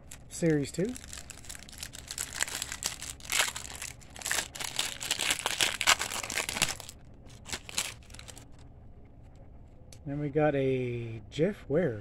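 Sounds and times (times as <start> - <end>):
wrapper crinkling and tearing: 0.0 - 8.5.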